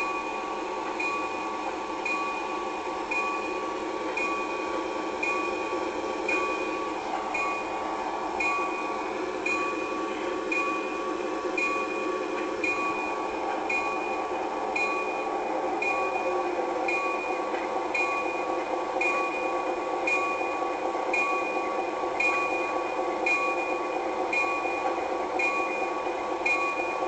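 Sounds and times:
locomotive bell ringing: 0.0s - 27.0s
train noise: 0.0s - 27.0s.

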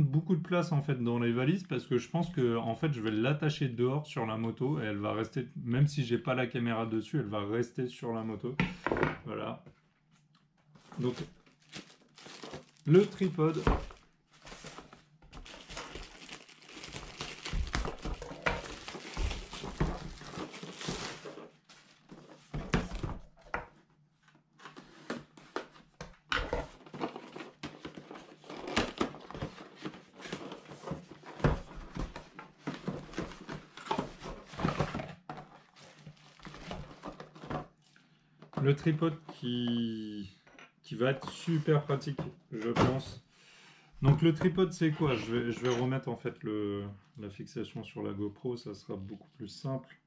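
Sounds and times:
plastic wrapping crinkling: 10.8s - 22.4s, 35.7s - 37.3s
cardboard boxes rustling and knocking: 10.9s - 23.6s, 24.6s - 37.7s.

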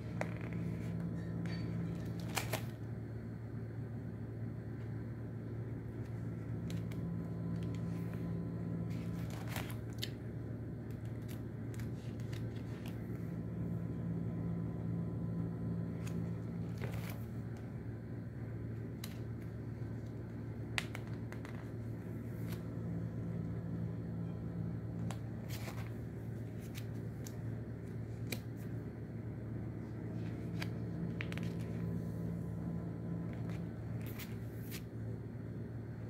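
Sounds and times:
album pages being turned: 0.0s - 2.9s, 4.8s - 35.4s
steady low hum: 0.0s - 36.0s
paper rustling and clicks: 0.1s - 2.8s, 6.0s - 10.2s, 10.8s - 13.2s, 15.8s - 17.7s, 18.8s - 22.7s, 25.0s - 28.8s, 30.0s - 32.0s, 33.2s - 34.9s.

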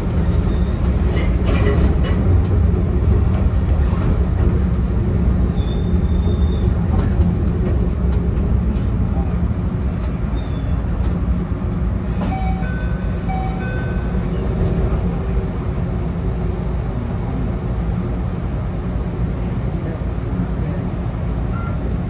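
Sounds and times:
electric train humming: 11.0s - 19.0s.

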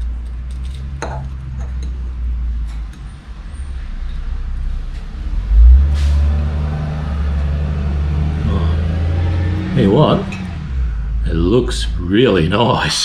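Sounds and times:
low rumble: 3.6s - 12.8s.

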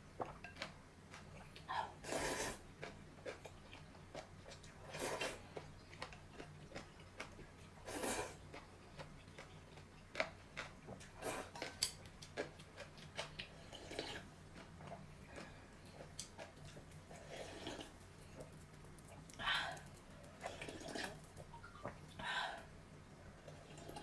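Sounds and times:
slurping noodles: 2.0s - 2.6s, 4.8s - 5.5s, 7.8s - 8.4s, 13.6s - 14.3s, 17.1s - 18.0s.

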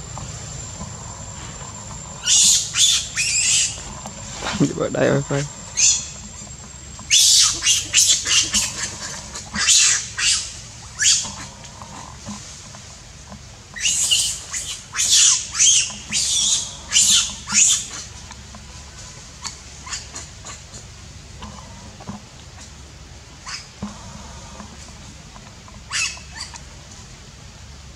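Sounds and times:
baby monkey screaming: 2.2s - 3.8s, 5.8s - 6.2s, 7.1s - 11.5s, 13.8s - 18.1s, 19.4s - 20.8s, 23.4s - 23.7s, 25.9s - 26.6s.

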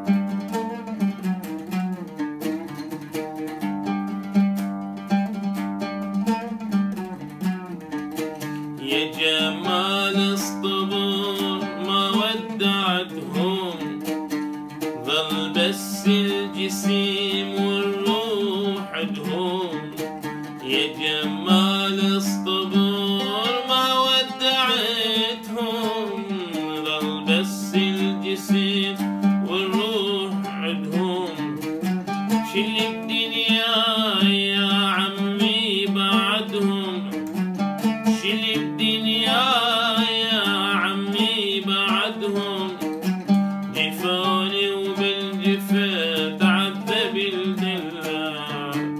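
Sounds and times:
oud plucked notes: 0.0s - 48.9s
man singing: 8.8s - 14.2s, 14.9s - 37.4s, 38.0s - 48.9s.

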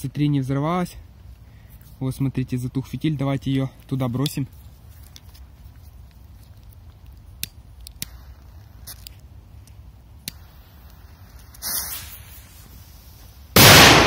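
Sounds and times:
fuse hissing: 10.3s - 13.6s.

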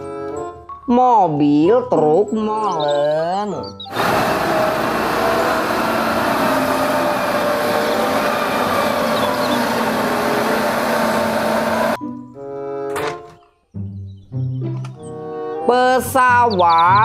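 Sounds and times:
diesel truck engine running: 3.9s - 12.0s
traffic noise: 3.9s - 12.0s.

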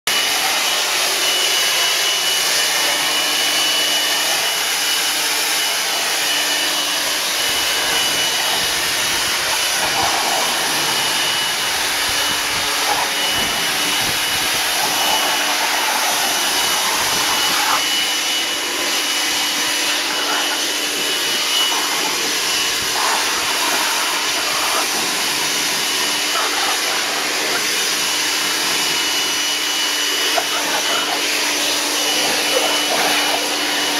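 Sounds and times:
electric leaf blower running: 0.1s - 33.9s.

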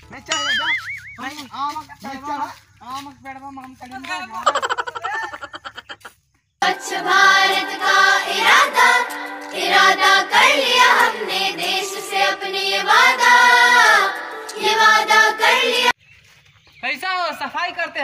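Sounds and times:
song with sung vocals: 6.6s - 16.0s.

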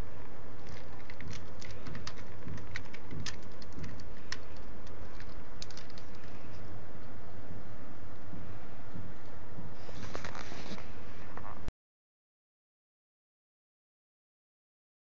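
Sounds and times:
handling clicks and ticks: 0.6s - 7.1s.

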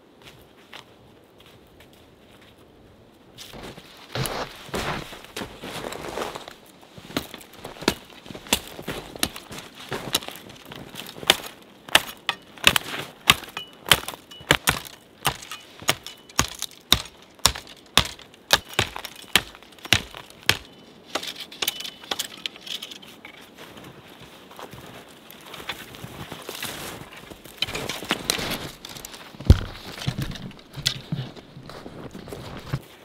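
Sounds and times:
sticks and twigs snapping: 7.2s - 23.4s.

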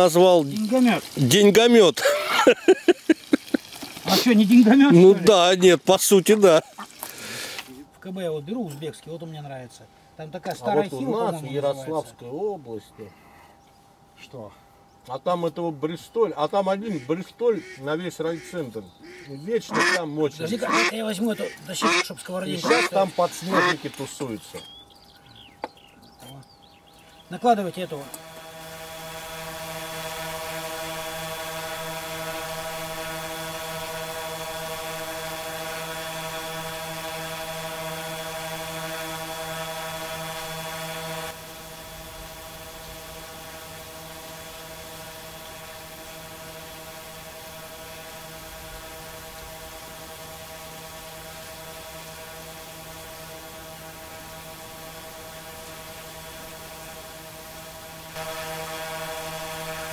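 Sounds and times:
drone propellers buzzing: 17.3s - 24.4s, 27.4s - 59.9s.

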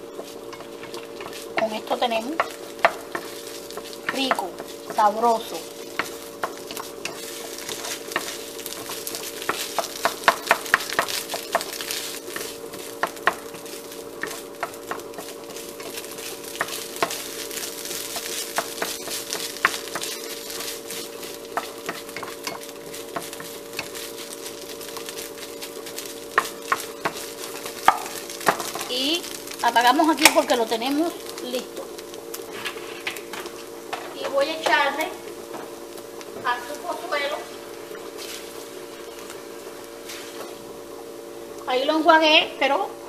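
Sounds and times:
meat sizzling in a pan: 0.0s - 43.0s
steady hum: 0.0s - 43.0s
spatula tapping and scraping pan: 0.1s - 30.7s.

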